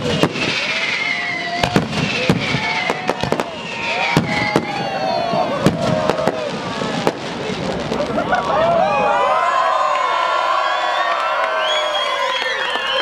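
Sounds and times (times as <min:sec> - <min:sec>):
firework shells bursting: 0:00.0 - 0:05.0.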